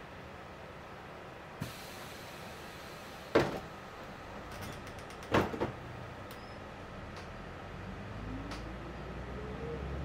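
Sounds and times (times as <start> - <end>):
bus rumble from inside: 0.0 - 10.0.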